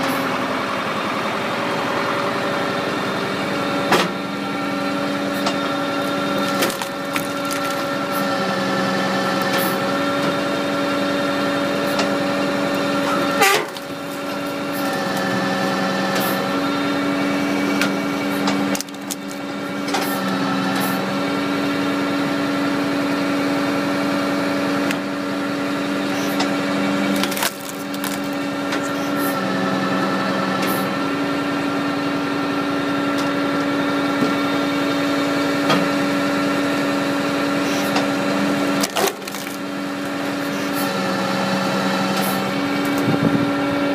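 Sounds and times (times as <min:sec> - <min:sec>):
engine running: 0:00.0 - 0:43.9
logs cracking and splintering: 0:06.1 - 0:08.3, 0:13.0 - 0:15.3, 0:18.6 - 0:19.8, 0:27.0 - 0:28.9, 0:38.8 - 0:40.4.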